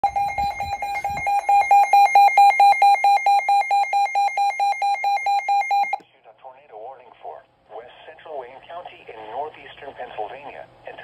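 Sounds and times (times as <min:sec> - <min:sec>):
emergency alert tone beeping: 0:00.0 - 0:06.0.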